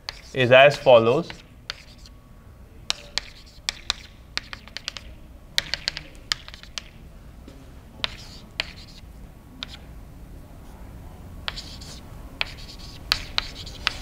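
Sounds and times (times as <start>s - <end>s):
chalk tapping on blackboard: 0.0s - 2.1s, 2.9s - 7.0s, 8.0s - 9.0s, 9.6s - 9.8s, 11.4s - 14.0s.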